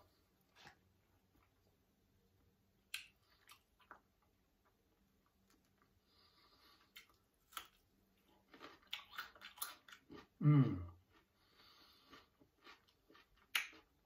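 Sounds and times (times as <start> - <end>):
wet chewing: 6.6 - 10.4, 11.0 - 14.0
person humming mmm: 10.4 - 11.0.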